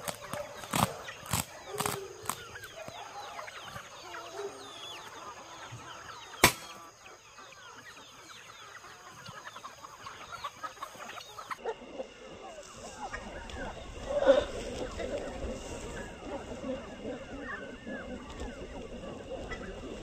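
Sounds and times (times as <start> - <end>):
chickens clucking and peeping: 0.0 - 20.0
sharp snap: 6.4 - 6.8.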